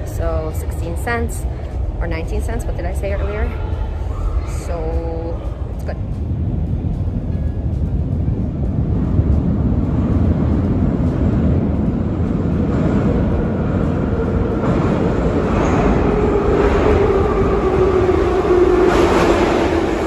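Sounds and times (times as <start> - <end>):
steady train whine: 0.0 - 20.0
train rumble in tunnel: 0.0 - 20.0.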